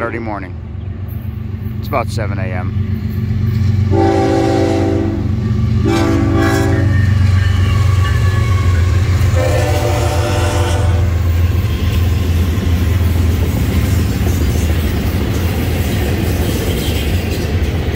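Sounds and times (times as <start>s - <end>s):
train horn blasts: 3.9s - 11.9s.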